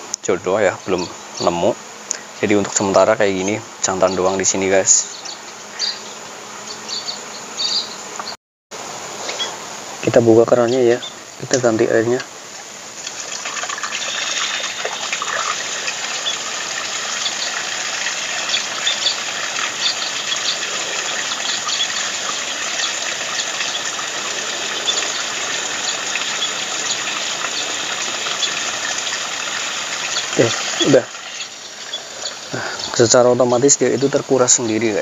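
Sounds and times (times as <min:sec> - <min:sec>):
small water splashes: 0:13.0 - 0:32.5
water gushing from a tap: 0:13.0 - 0:32.5.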